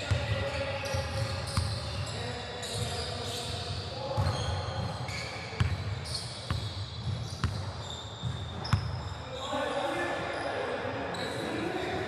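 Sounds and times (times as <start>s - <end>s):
sneakers squeaking: 0.0s - 9.6s, 10.3s - 11.7s.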